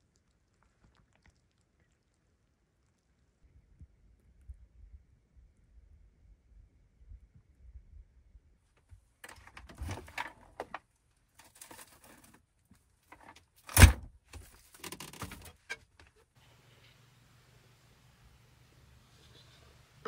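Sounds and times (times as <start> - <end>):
rustling and handling noises: 8.8 - 17.0.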